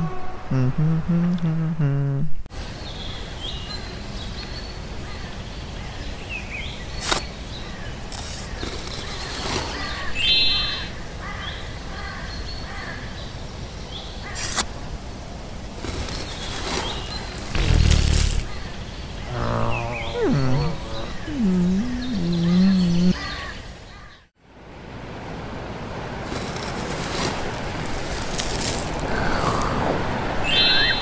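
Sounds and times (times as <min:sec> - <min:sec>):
rough loud noise: 0:15.8 - 0:18.7
birds chirping: 0:15.8 - 0:24.3
steady hiss: 0:26.1 - 0:30.4.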